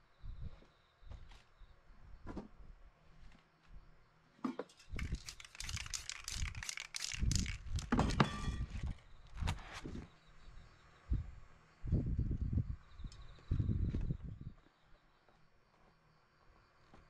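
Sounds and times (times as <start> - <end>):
spray paint hissing: 4.9 - 8.0.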